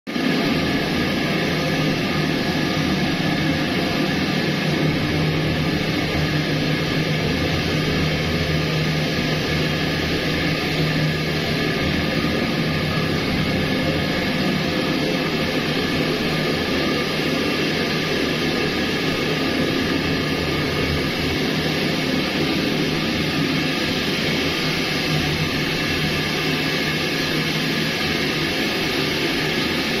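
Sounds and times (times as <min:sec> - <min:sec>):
rushing machine noise: 0:00.1 - 0:30.0.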